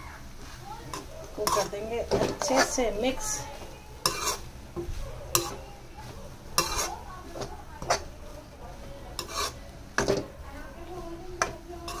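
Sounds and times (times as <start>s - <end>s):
metal spoon scraping metal pan: 0.9s - 4.5s, 5.3s - 5.6s, 6.6s - 8.1s, 9.2s - 10.3s, 11.4s - 12.0s.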